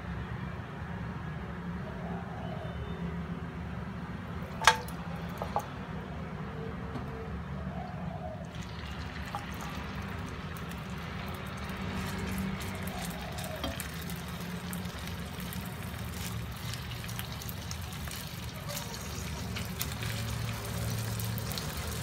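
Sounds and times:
chicken sizzling in a pan: 8.5s - 22.0s.

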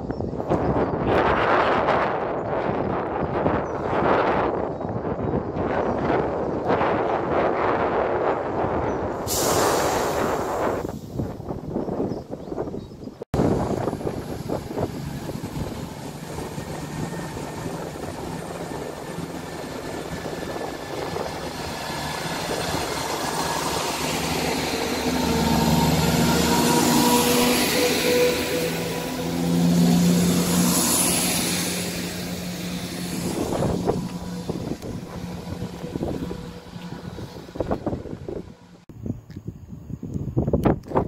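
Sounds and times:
diesel train engines humming: 1.2s - 39.2s
wheels hissing on rail: 9.0s - 12.1s, 13.4s - 38.8s.

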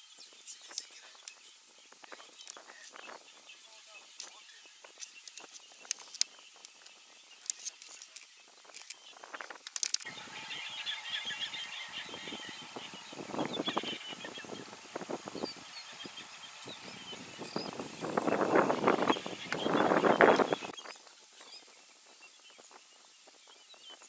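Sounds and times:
birds chirping: 0.0s - 24.0s
steady high-pitched whine: 0.0s - 24.0s
rustling and crackling: 0.2s - 10.6s.

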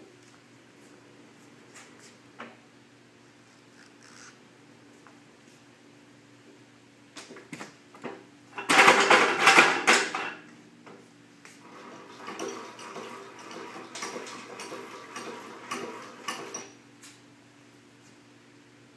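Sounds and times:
pallet truck metallic clatter: 8.6s - 10.4s.

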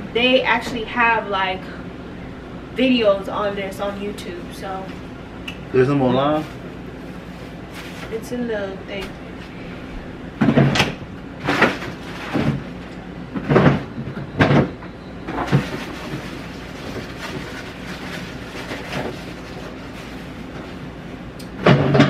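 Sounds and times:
steady low hum: 0.0s - 22.0s
kitchen knocks and clatter: 13.4s - 16.3s, 21.6s - 22.0s.

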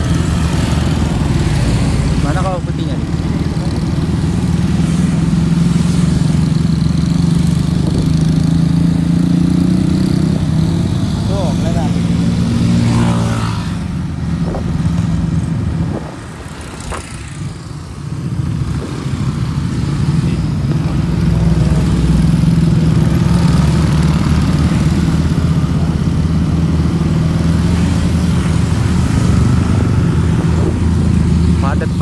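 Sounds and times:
wind noise: 6.9s - 8.8s, 14.2s - 20.9s, 27.8s - 31.6s.

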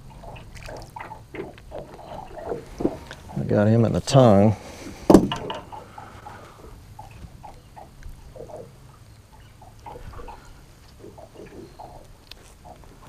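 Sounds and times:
small water splashes and drips: 0.2s - 1.7s.

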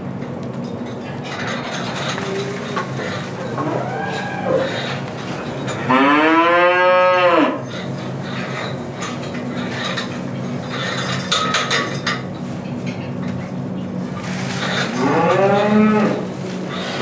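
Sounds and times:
cow mooing: 2.2s - 5.0s, 5.8s - 7.6s, 14.9s - 16.3s.

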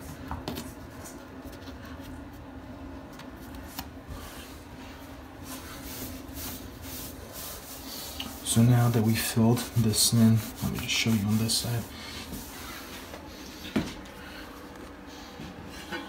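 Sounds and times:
sponge rubbing over pebbles: 5.4s - 13.2s.

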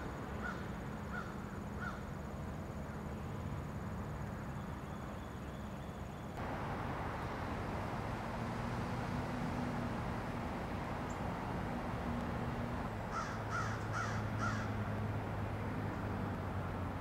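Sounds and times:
crow cawing: 0.4s - 2.0s, 13.1s - 14.8s
diesel locomotive humming: 6.4s - 17.0s.

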